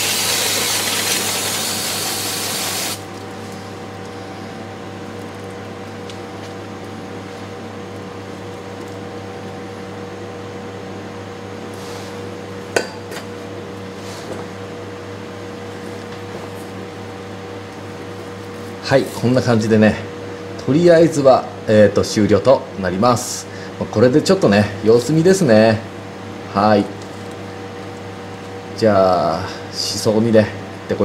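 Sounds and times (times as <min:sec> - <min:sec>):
aerosol spray can hissing: 0:00.0 - 0:03.0
steady mechanical hum: 0:00.0 - 0:31.0.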